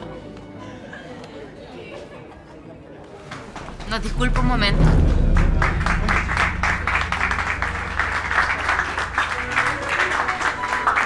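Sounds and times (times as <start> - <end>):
crowd clapping: 3.2 - 4.6, 5.2 - 11.0.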